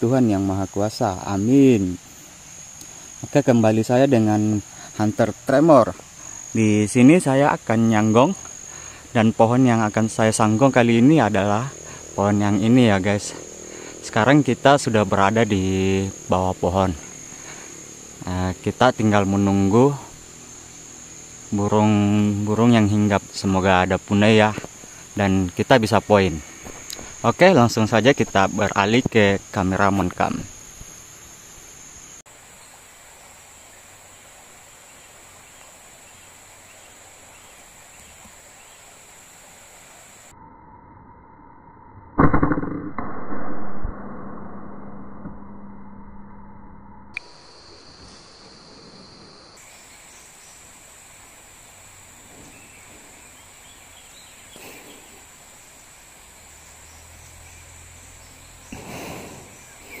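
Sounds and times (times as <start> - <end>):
faint background hiss: 0.0 - 40.3, 47.2 - 60.0
high-pitched insect buzz: 0.0 - 42.1, 46.4 - 60.0
faint chirps: 0.0 - 42.2, 43.1 - 60.0
faint high-pitched whine: 0.0 - 60.0
sudden loud sound: 42.0 - 47.2.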